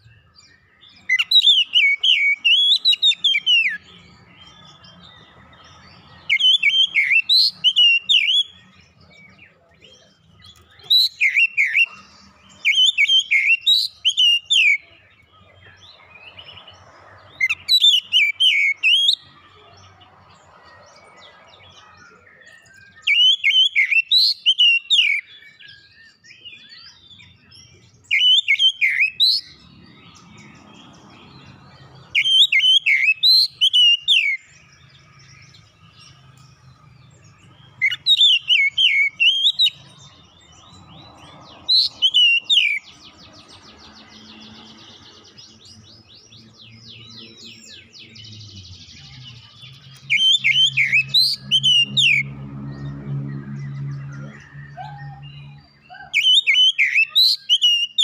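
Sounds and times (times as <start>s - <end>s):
bird singing whistled phrases: 10.5s - 12.0s, 12.6s - 15.0s, 22.1s - 27.0s, 28.0s - 29.6s, 32.2s - 34.6s, 37.8s - 39.8s, 41.7s - 42.9s, 49.6s - 52.3s, 53.7s - 58.0s.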